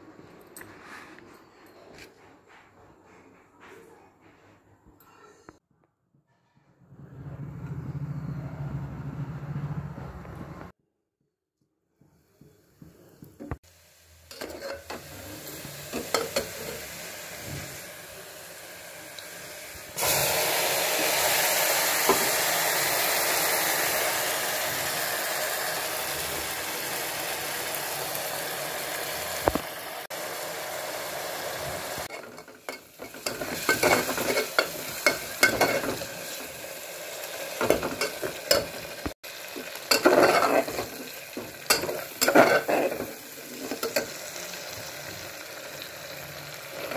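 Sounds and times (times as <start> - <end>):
hot oil sizzling: 13.5 - 46.9
spoon scraping metal pot: 14.3 - 15.0, 32.1 - 36.1, 39.9 - 41.0, 41.7 - 44.1.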